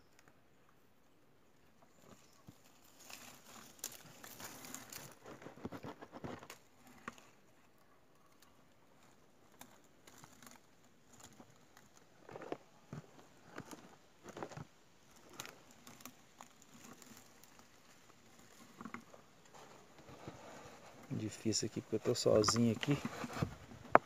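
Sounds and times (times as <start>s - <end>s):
leaves crackling: 2.0s - 7.4s, 9.0s - 12.6s, 14.3s - 23.5s.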